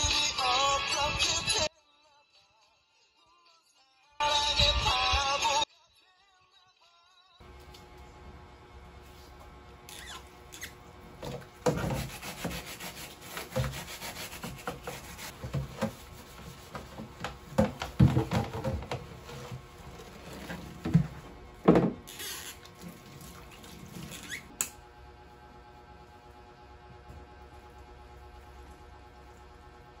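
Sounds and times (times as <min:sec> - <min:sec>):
plastic container scrubbed: 0:11.2 - 0:21.4
container knocking against sink: 0:16.7 - 0:19.0, 0:20.8 - 0:22.1.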